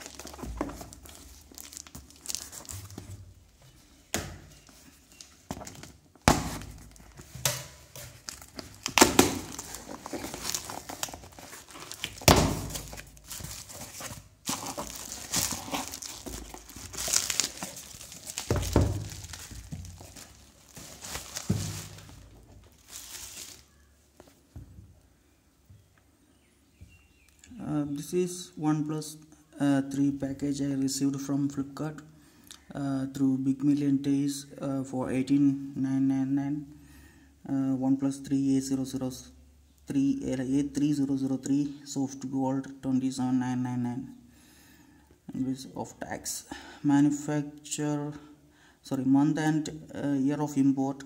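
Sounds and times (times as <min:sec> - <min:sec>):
cardboard and bubble wrap crinkling: 0:00.0 - 0:03.4, 0:04.6 - 0:24.4.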